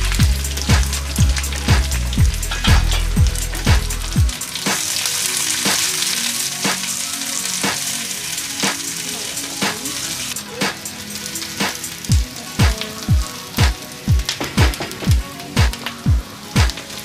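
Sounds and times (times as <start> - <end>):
deep bass thumps: 0.0 - 4.3
onions sizzling in oil: 0.0 - 14.6
background music with beat: 0.0 - 17.0.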